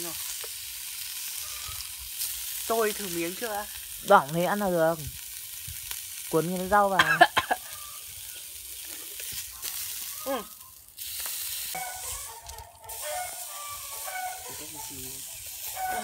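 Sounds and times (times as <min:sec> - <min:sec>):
meat sizzling: 0:00.0 - 0:16.0.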